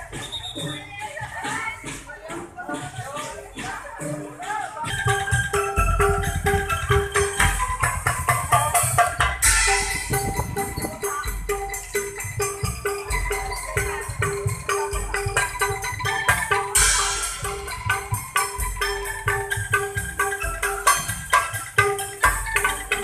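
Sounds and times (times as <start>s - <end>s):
drum beats: 0.0s - 23.0s
pitched mallet strikes: 4.8s - 23.0s.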